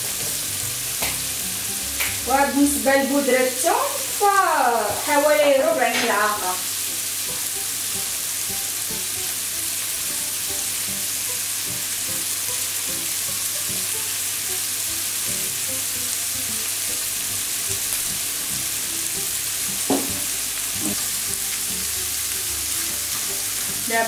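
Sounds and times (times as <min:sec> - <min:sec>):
food sizzling in a frying pan: 0:00.0 - 0:24.0
spatula knocking against pan: 0:19.8 - 0:20.2.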